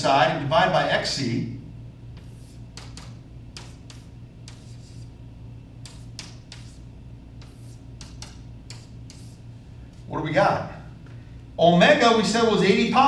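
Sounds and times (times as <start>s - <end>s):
low room hum: 0.0s - 13.0s
chalk tapping and scratching: 2.2s - 5.2s, 5.8s - 10.1s.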